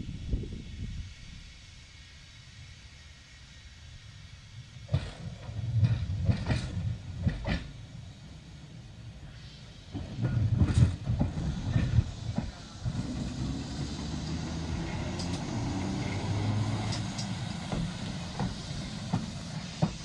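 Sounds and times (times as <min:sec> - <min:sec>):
tram rumbling past: 0:04.3 - 0:20.0
tram wheels knocking and clattering: 0:04.8 - 0:08.0, 0:09.9 - 0:20.0.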